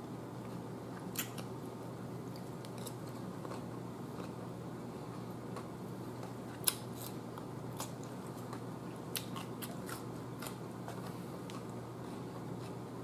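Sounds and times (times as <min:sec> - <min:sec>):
steady low hum: 0:00.0 - 0:13.0
crisp crunches of chewing cucumber: 0:02.2 - 0:04.4, 0:05.5 - 0:12.8.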